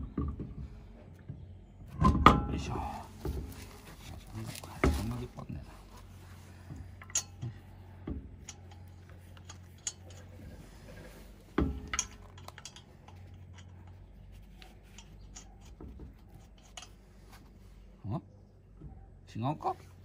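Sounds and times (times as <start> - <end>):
metal clank: 1.9 - 3.7, 6.9 - 17.0
metal lug nuts clinking: 1.9 - 17.6.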